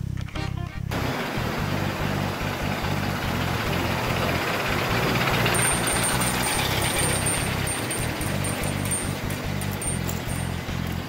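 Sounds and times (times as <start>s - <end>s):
model trains rattling on track: 1.0s - 11.0s
thin high tone: 4.0s - 11.0s.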